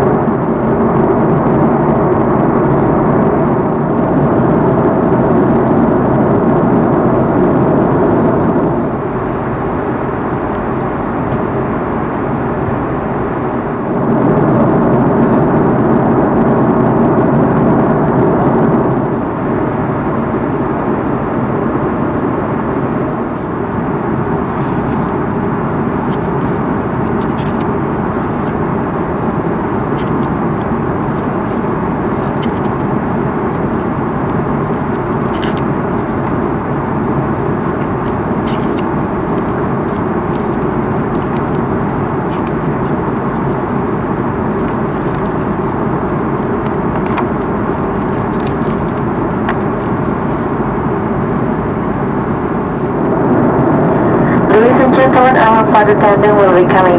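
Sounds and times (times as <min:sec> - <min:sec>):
aircraft cabin roar: 0:00.0 - 0:56.9
paper menu pages turning: 0:24.4 - 0:25.1, 0:25.8 - 0:28.7, 0:29.9 - 0:36.5, 0:37.3 - 0:50.6.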